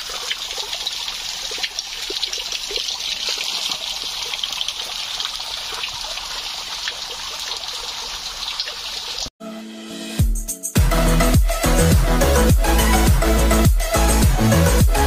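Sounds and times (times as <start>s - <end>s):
water trickling and splashing: 0.0s - 9.4s.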